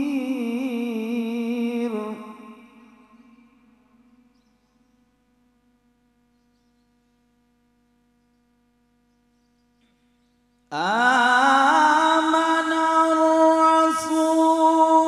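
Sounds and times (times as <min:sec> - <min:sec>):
man reciting melodically into microphone: 0:00.0 - 0:03.7, 0:10.7 - 0:15.0
faint steady hum: 0:00.0 - 0:15.0.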